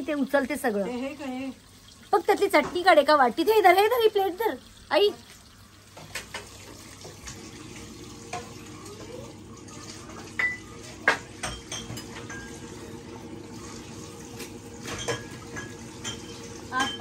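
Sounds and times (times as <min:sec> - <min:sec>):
dishes and cutlery clinking: 0:10.0 - 0:12.8, 0:14.4 - 0:17.0.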